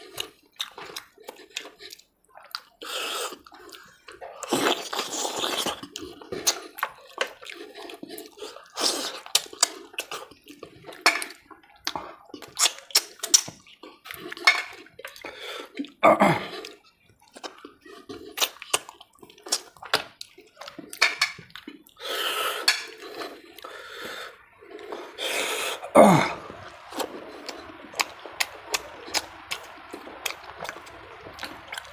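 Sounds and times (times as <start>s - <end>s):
wet chewing and lip smacking: 0.0s - 31.9s
wet slurps sucking meat off bone: 1.0s - 10.9s.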